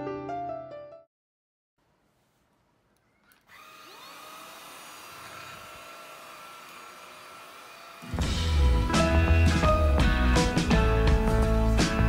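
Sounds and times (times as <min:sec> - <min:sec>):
stick vacuum whining: 0:03.0 - 0:08.7.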